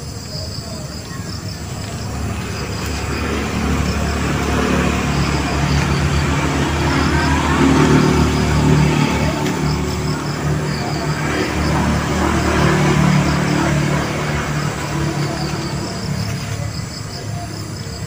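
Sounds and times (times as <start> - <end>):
insects chirping: 0.0 - 18.0
vehicle engine running: 1.3 - 18.0.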